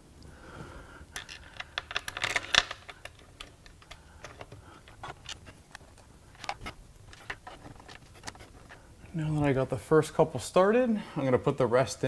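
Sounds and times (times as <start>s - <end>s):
small metal bolts clicking: 1.2s - 5.8s.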